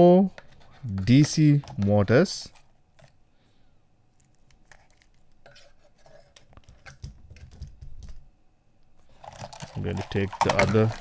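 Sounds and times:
plastic parts clicking and tapping: 0:06.4 - 0:08.2, 0:09.2 - 0:11.0.

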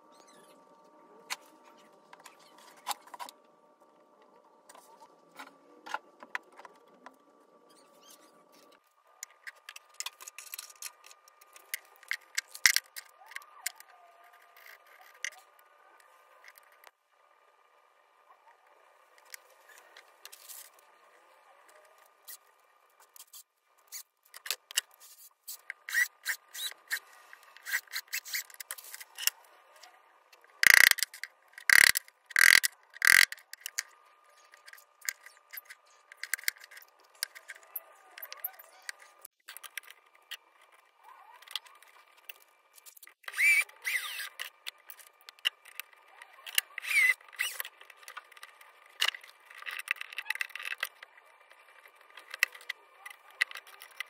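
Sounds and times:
short squeaky scrapes: 0:07.7 - 0:08.7, 0:25.0 - 0:29.3, 0:43.2 - 0:44.4, 0:46.7 - 0:47.7.

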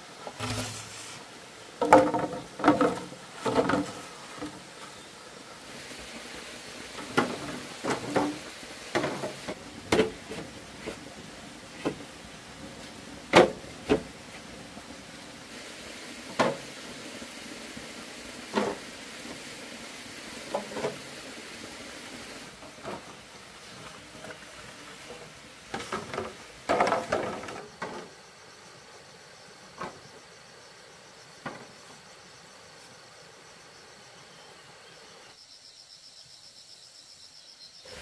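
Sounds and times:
faint steady hiss: 0:00.0 - 0:38.0
wooden knocks and clacks: 0:01.8 - 0:04.6, 0:07.0 - 0:11.0, 0:25.7 - 0:28.1.

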